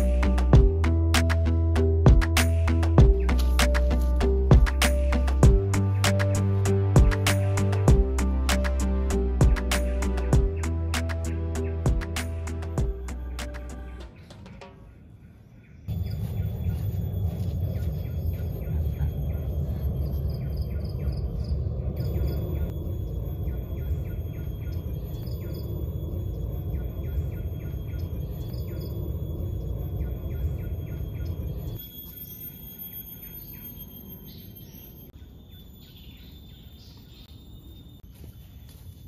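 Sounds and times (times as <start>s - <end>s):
forest birds chirping: 9.9s - 39.0s.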